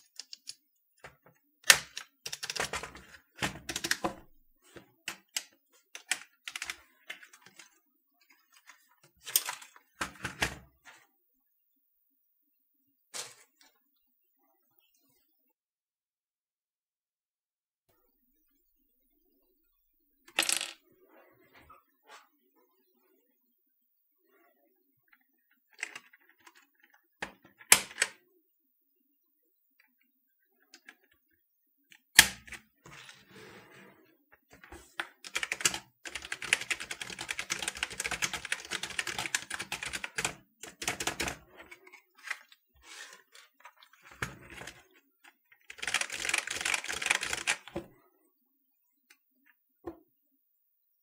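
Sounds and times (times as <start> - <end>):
rapid keyboard key clicks: 1.7 - 2.9, 35.2 - 41.4, 45.6 - 47.7.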